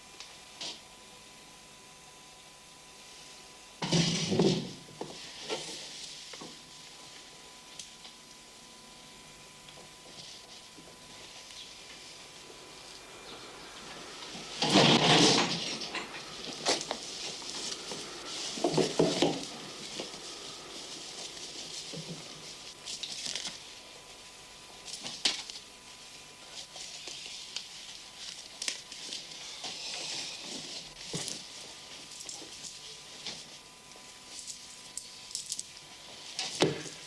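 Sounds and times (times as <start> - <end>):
clothing and bedclothes rustling: 13.8 - 23.8.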